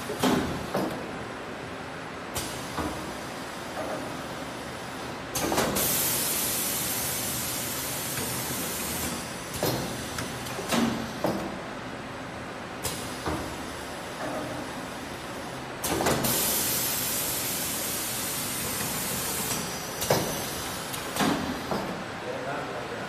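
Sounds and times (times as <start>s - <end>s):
machine clunks and knocks: 0.0s - 1.2s, 2.4s - 3.1s, 5.4s - 6.0s, 9.0s - 11.6s, 12.9s - 13.6s, 15.8s - 16.4s, 19.4s - 22.1s.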